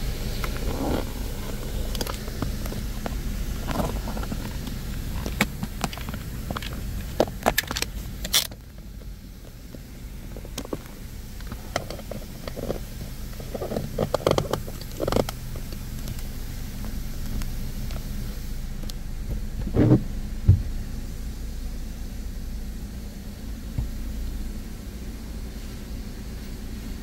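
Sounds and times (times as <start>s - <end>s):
water spray hissing: 0.0s - 8.3s
low hum: 0.0s - 27.0s.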